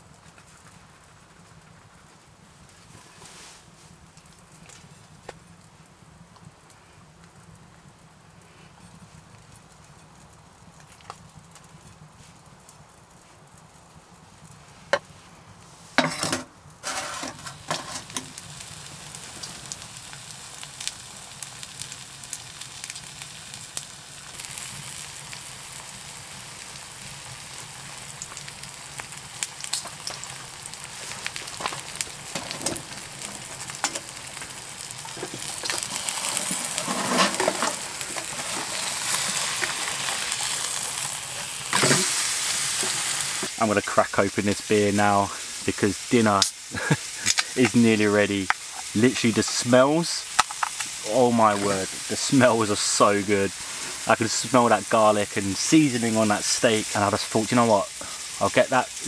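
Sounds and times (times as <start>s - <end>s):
steak sizzling in a pan: 16.8s - 59.0s.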